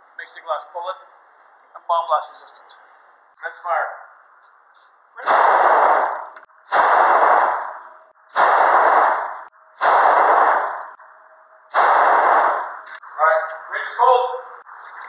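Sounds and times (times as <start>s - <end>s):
handgun shots: 5.2s - 10.9s, 11.7s - 13.0s.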